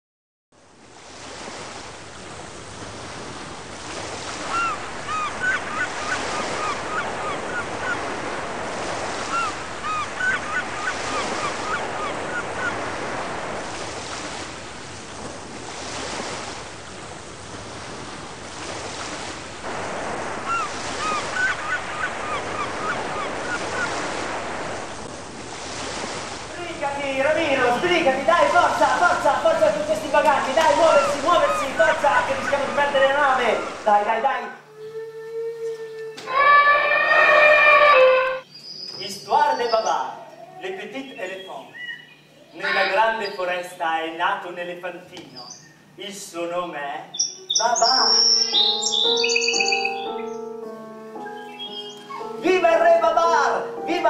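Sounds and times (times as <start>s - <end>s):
sea waves washing: 0.7s - 38.5s, 47.1s - 54.0s
short high chirping cries: 34.7s - 38.9s, 47.2s - 50.6s, 51.2s - 52.5s.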